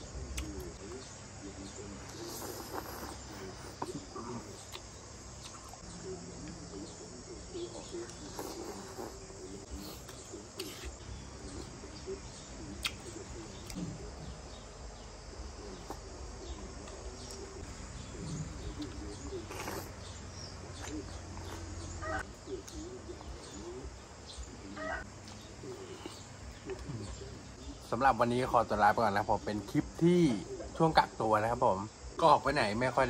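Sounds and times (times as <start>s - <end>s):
birds chirping: 0.0s - 33.0s
insects chirping: 0.0s - 33.0s
man slurping and chewing noodles: 8.3s - 9.2s, 19.5s - 20.0s.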